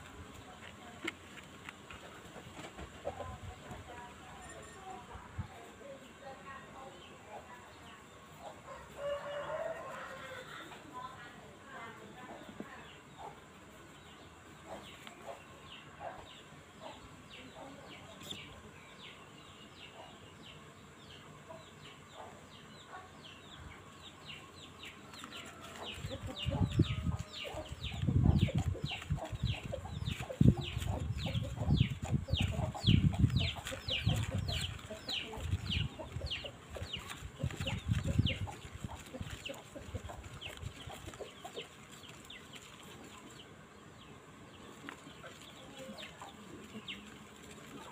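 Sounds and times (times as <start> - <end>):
chicks peeping: 12.1 - 47.9.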